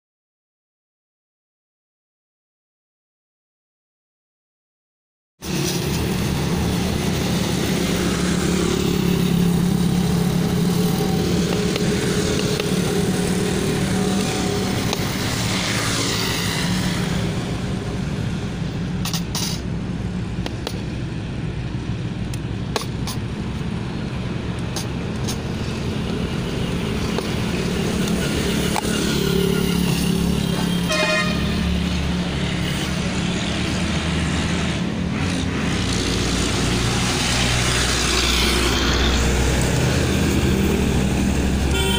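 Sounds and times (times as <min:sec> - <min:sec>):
roadside traffic noise: 0:05.4 - 0:41.9
vehicle horn: 0:28.6 - 0:31.7, 0:41.7 - 0:41.9.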